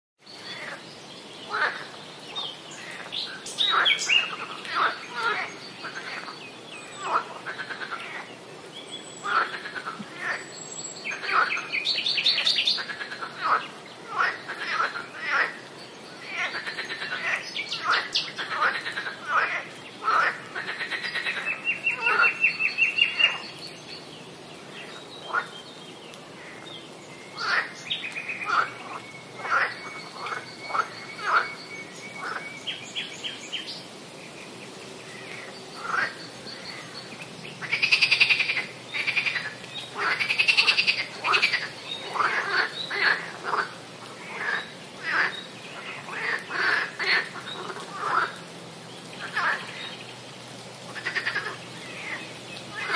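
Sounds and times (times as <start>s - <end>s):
birds chirping: 0.2s - 52.9s
frogs calling: 1.4s - 8.4s, 9.2s - 23.6s, 24.9s - 25.6s, 26.3s - 33.9s, 35.0s - 48.5s, 49.1s - 50.1s, 50.8s - 52.9s
rasping frog calls: 28.4s - 31.6s, 37.6s - 48.4s, 50.9s - 52.9s.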